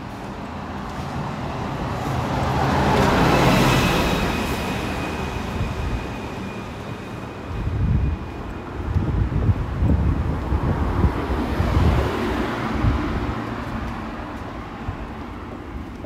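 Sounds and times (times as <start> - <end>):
wind buffeting microphone: 7.5 - 16.0.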